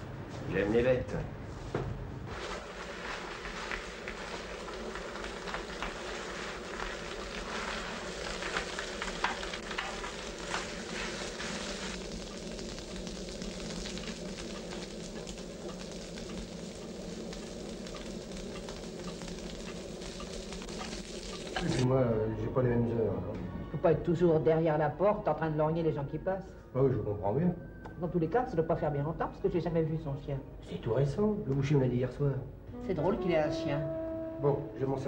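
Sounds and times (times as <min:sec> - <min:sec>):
meat sizzling in a frying pan: 0:02.3 - 0:21.8.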